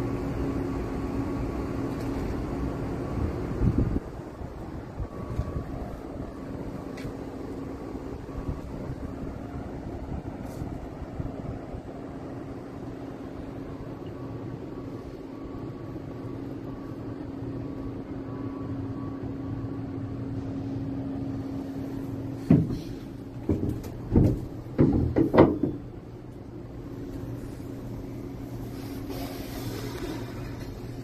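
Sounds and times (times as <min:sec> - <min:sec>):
steady low hum: 0:00.0 - 0:31.0
knocks and bumps against wood: 0:22.4 - 0:25.9.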